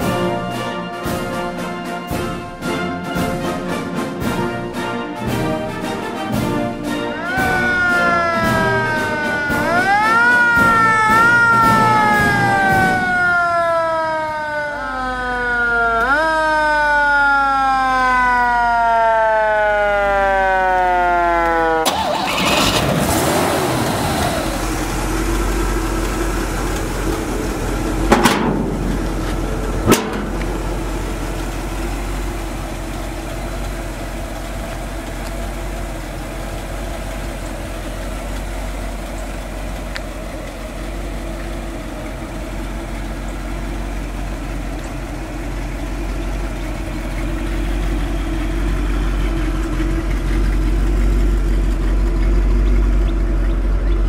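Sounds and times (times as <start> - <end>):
car engine running: 0.0 - 54.0
siren winding down: 7.1 - 39.9.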